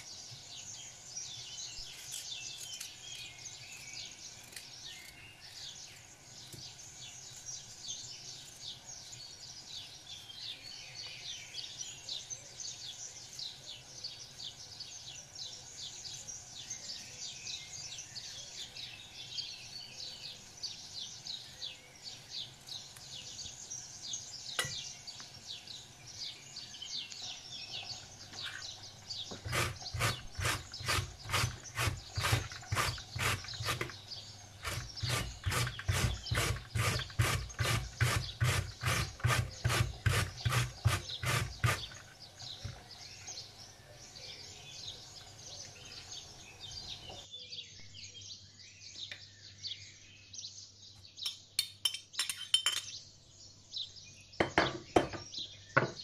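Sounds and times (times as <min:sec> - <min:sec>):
knife and handling sounds: 0:01.8 - 0:05.2
beetroot rasping on metal grater: 0:29.3 - 0:34.0, 0:34.6 - 0:42.1.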